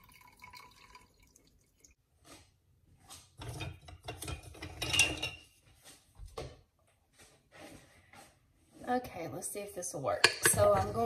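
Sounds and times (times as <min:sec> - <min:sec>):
juice splashing and dripping: 0:00.0 - 0:02.0.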